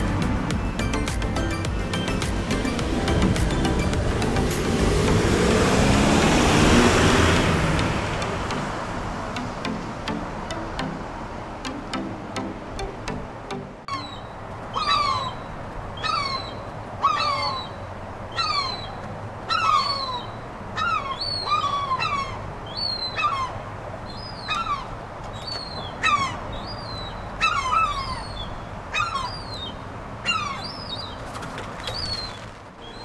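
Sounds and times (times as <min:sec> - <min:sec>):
gull calling: 0:13.9 - 0:23.6, 0:24.2 - 0:33.0.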